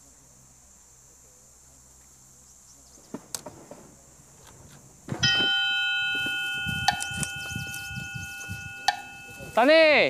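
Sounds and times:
bell-like chime: 0:05.2 - 0:10.0.

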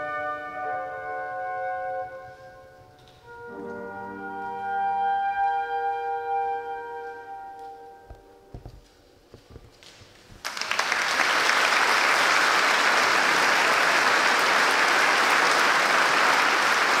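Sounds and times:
audience applauding: 0:10.4 - 0:17.0.

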